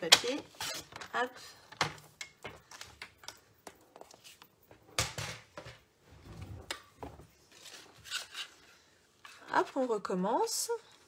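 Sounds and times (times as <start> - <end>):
paper rustling: 7.4 - 10.1.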